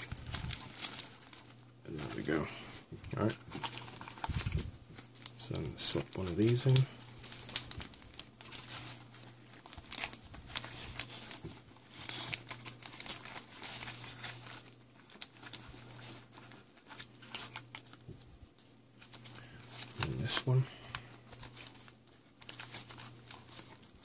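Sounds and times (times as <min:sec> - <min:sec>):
plastic sachet crinkling: 0:00.0 - 0:24.0
steady low hum: 0:00.0 - 0:24.0.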